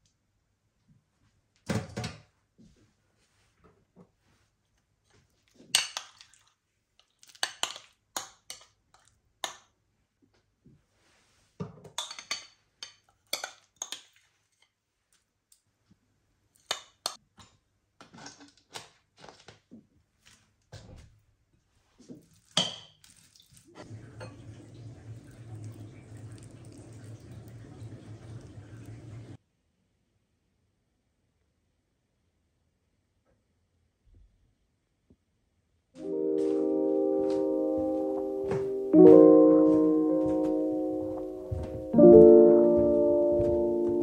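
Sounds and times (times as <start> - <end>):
cutlery clinking on ceramic bowls: 12.0 - 14.2.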